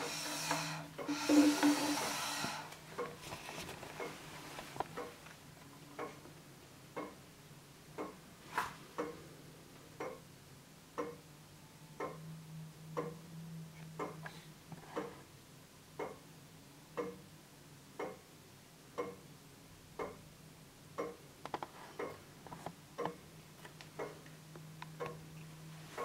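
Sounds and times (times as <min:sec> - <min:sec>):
pendulum clock ticking: 0:00.0 - 0:02.3, 0:05.0 - 0:05.2, 0:06.0 - 0:06.2, 0:06.9 - 0:07.2, 0:07.9 - 0:08.2, 0:10.0 - 0:10.3, 0:10.9 - 0:11.3, 0:12.0 - 0:12.3, 0:12.9 - 0:13.3, 0:13.9 - 0:14.2, 0:16.0 - 0:16.3, 0:17.0 - 0:17.3, 0:18.0 - 0:18.3, 0:19.0 - 0:19.3, 0:20.0 - 0:20.3, 0:20.9 - 0:21.3, 0:24.0 - 0:24.3.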